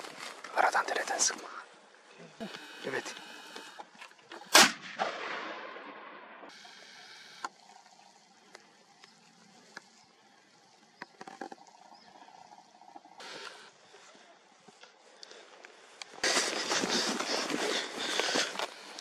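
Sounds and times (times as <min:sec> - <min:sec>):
rifle shot with echo: 0:04.5 - 0:06.5.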